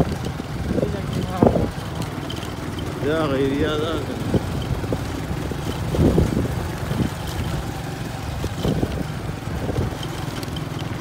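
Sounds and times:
wind on microphone: 0.0s - 2.0s, 3.8s - 10.3s
vehicle engine running: 0.0s - 11.0s.

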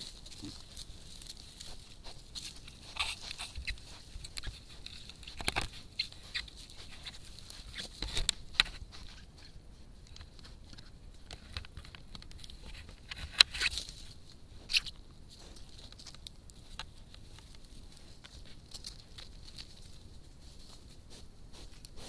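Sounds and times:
animal rubbing against camera: 0.0s - 10.9s.

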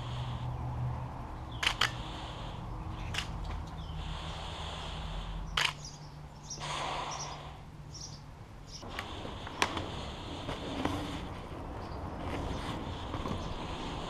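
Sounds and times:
camera shutter clicks: 1.6s - 2.0s, 5.6s - 5.9s.

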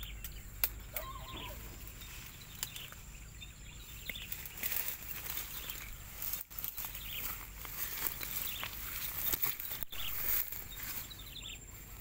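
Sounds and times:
faint high chirps: 0.0s - 4.5s
dry leaves and twigs crackling: 0.0s - 12.0s
footsteps in forest undergrowth: 0.0s - 12.0s.

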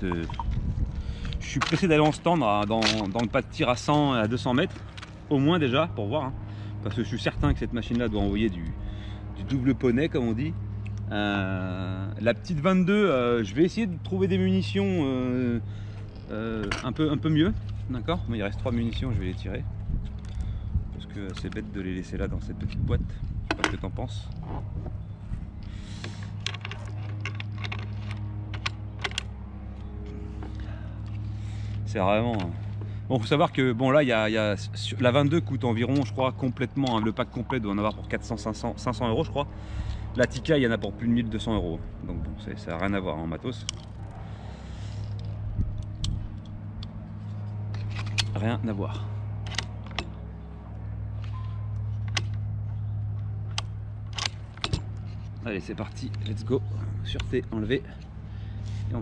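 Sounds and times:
steady low hum: 0.0s - 59.0s
small metallic clicks: 25.6s - 29.9s, 45.0s - 48.4s, 49.4s - 50.2s, 51.2s - 56.4s.

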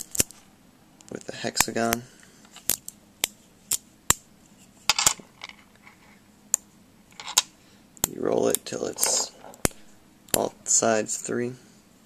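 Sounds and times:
magnets clicking together: 2.6s - 4.2s.

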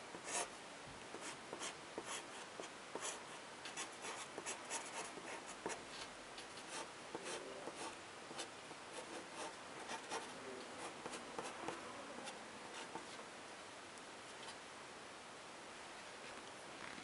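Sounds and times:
pen scratching on paper: 0.2s - 0.5s, 1.1s - 3.2s, 3.8s - 5.8s, 6.7s - 13.2s.

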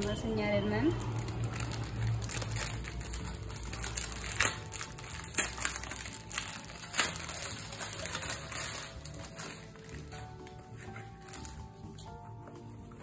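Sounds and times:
plastic pouch crinkling: 0.9s - 12.1s.

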